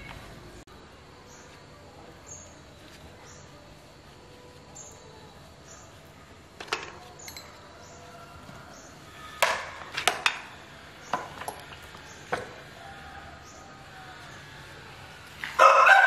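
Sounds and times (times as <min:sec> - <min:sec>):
metal tools clinking: 0:06.6 - 0:07.6.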